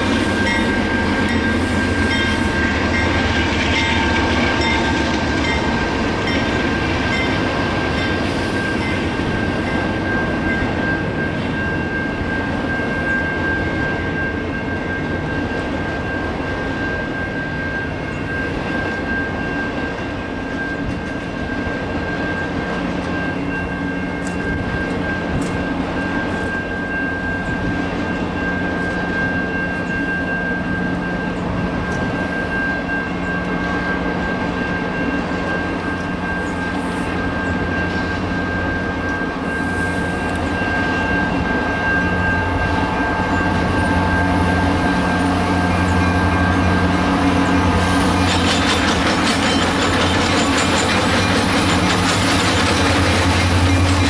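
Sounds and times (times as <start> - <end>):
diesel locomotive engine drone: 0.0 - 54.0
freight train rumbling past: 0.0 - 54.0
train wheels clattering: 34.8 - 54.0.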